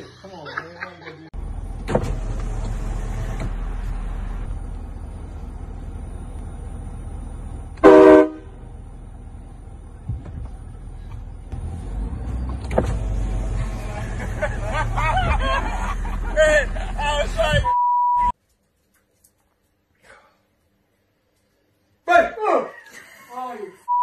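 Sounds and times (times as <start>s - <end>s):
steady low rumble: 3.6s - 11.6s
car horn honking: 7.8s - 8.8s.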